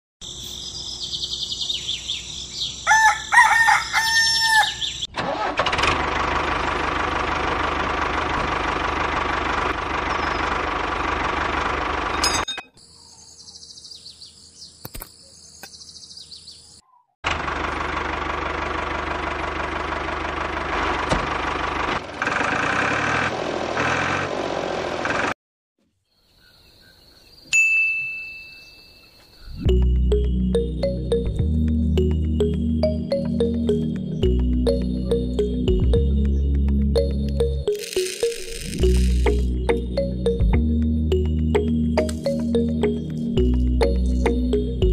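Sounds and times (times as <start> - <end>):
rooster crowing: 2.8 - 5.0.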